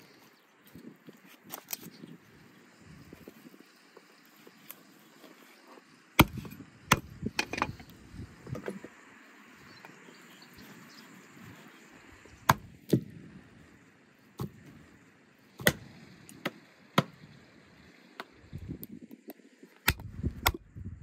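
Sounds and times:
cleaver chopping on wooden block: 0:06.2 - 0:07.5, 0:12.5 - 0:13.0, 0:15.6 - 0:15.8.

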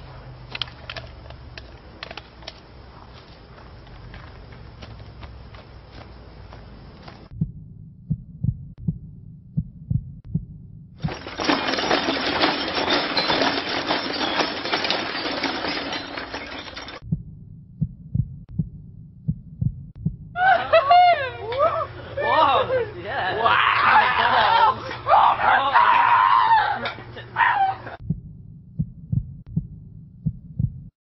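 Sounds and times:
heartbeat thumps: 0:07.3 - 0:11.1, 0:17.0 - 0:20.4, 0:28.0 - 0:31.0.

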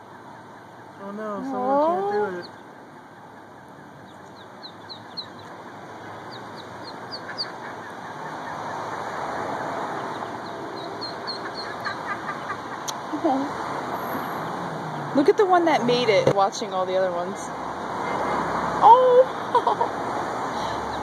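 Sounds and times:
ducklings peeping: 0:00.0 - 0:13.0
steady background noise: 0:00.0 - 0:21.0.

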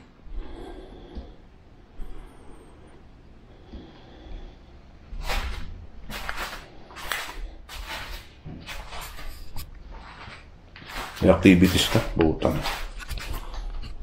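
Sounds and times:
footsteps scuffing on concrete: 0:05.2 - 0:14.0.

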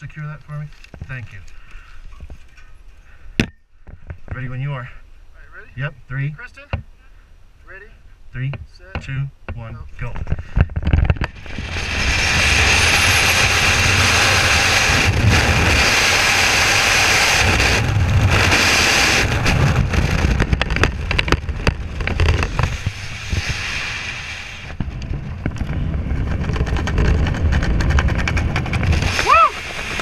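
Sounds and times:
wind rushing over microphone: 0:10.0 - 0:30.0.

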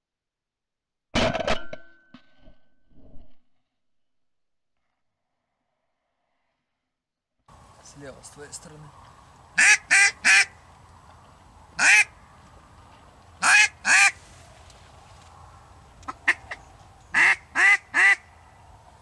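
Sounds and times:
duck call quacks: 0:09.6 - 0:10.5, 0:11.8 - 0:12.1, 0:13.4 - 0:14.2, 0:17.2 - 0:18.2.

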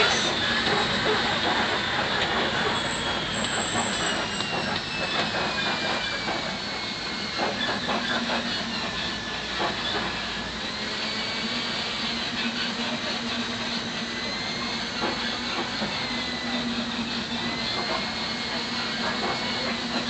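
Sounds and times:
truck engine and road noise: 0:00.0 - 0:10.7.

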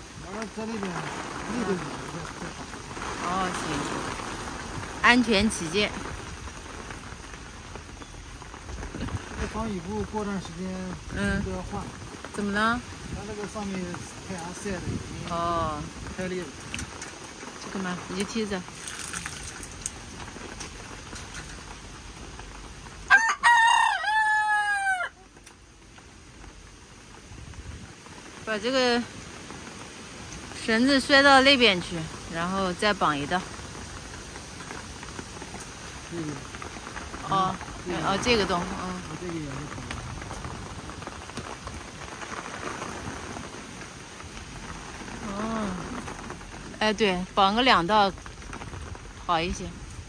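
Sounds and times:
heavy rain hissing: 0:00.0 - 0:50.0
rooster crowing: 0:23.1 - 0:25.3.

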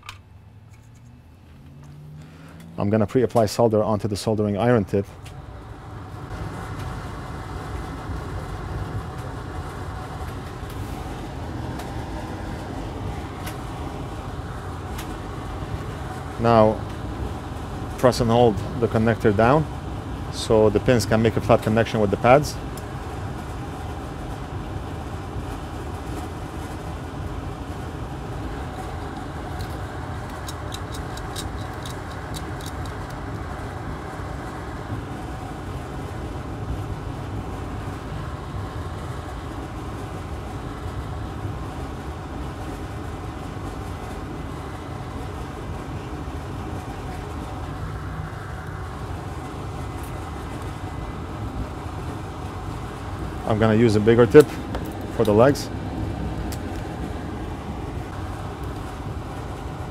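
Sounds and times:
extractor fan running: 0:00.0 - 0:59.9.

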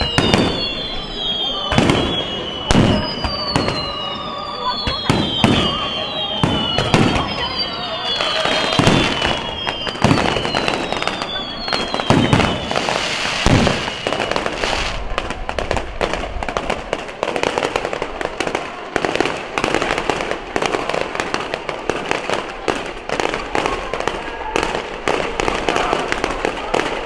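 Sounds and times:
fireworks bangs and crackle: 0:00.0 - 0:27.0
deep firework boom: 0:08.1 - 0:17.0.

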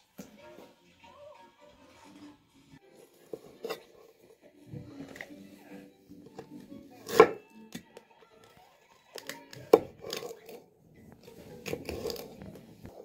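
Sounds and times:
knife striking cutting board: 0:07.0 - 0:07.4.

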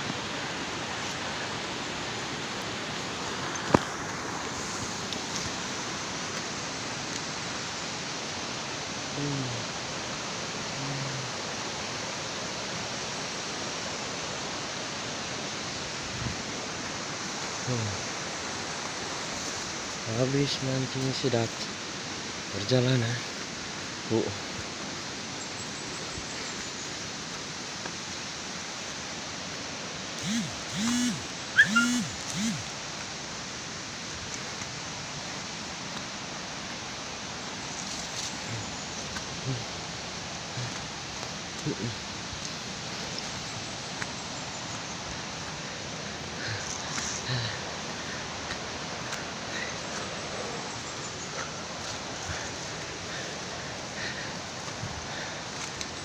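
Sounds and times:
flowing water rushing: 0:00.0 - 0:56.0
short low vocal sound: 0:09.1 - 0:09.7, 0:10.8 - 0:11.4, 0:39.4 - 0:39.8.

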